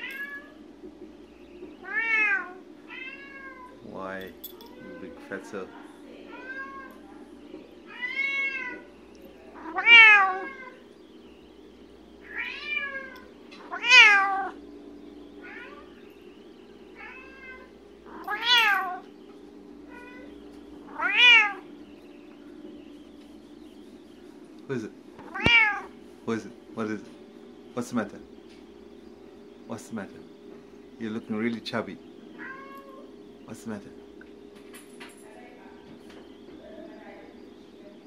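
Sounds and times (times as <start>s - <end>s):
steady low hum: 0.0s - 38.0s
cat meowing: 1.8s - 3.8s, 6.3s - 7.0s, 7.9s - 8.8s, 9.6s - 10.8s, 12.2s - 14.6s, 15.4s - 15.8s, 17.0s - 19.0s, 19.9s - 20.3s, 20.9s - 21.6s, 25.2s - 25.9s, 32.4s - 33.1s.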